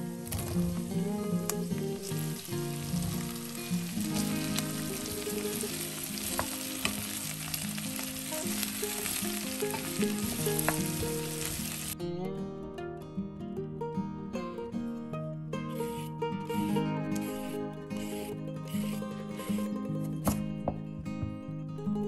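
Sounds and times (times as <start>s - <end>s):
pumpkin sizzling in hot oil: 0.0s - 12.0s
wooden spoon stirring in pot: 0.0s - 12.0s
soft guitar music: 0.0s - 22.0s.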